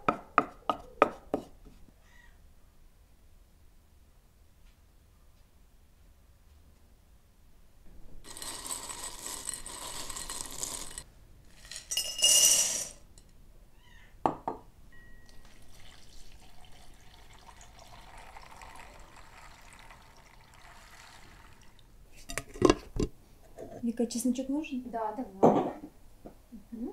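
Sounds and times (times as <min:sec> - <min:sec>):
glass clink: 0:11.7 - 0:13.3, 0:14.3 - 0:16.0
water pouring into bowl: 0:15.3 - 0:21.9.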